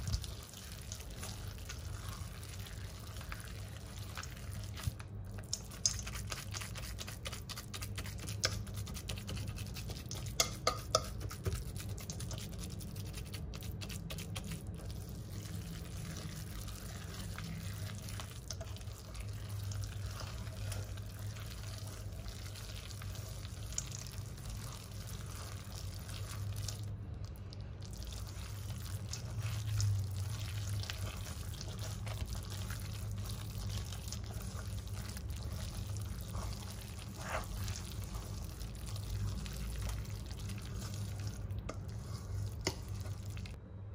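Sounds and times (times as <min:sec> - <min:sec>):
utensils and bowls clicking: 0:05.4 - 0:14.6.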